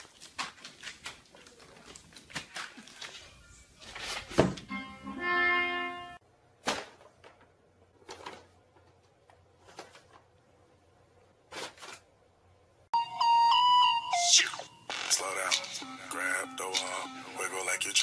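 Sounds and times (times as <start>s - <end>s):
music with steady tones: 13.0s - 17.6s
held pitched tone: 13.0s - 17.8s.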